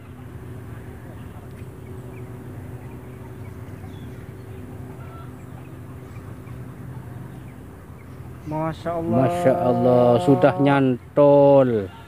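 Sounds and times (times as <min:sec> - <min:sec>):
low motor hum: 0:00.0 - 0:12.0
faint bird chirps: 0:01.2 - 0:08.6.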